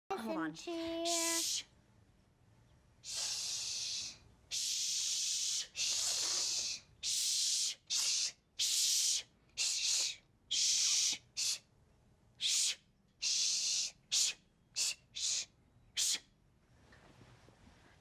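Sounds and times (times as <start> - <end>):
girl hissing shh: 1.1 - 1.7, 3.0 - 11.7, 12.4 - 16.3.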